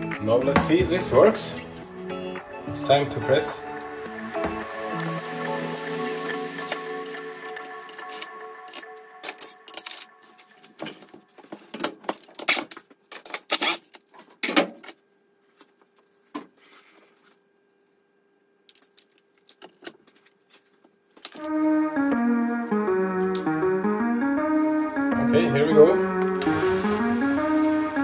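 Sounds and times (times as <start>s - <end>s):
background music: 0.0s - 11.4s, 21.4s - 28.0s
hand tools clinking on steel: 6.6s - 10.2s.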